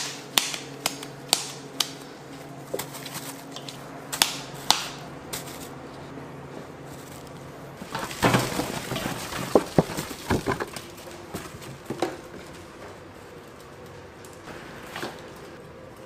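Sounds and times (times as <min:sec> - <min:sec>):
metal food pan clattering: 0:07.8 - 0:10.8.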